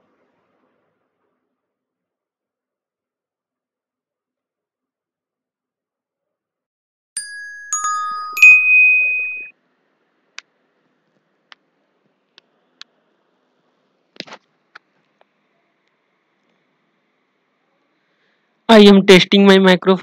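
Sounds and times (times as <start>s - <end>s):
three-note electronic chime: 7.2s - 9.5s.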